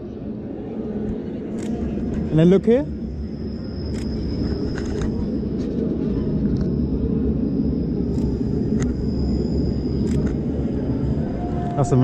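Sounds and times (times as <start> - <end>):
low city rumble: 0.0 - 12.0.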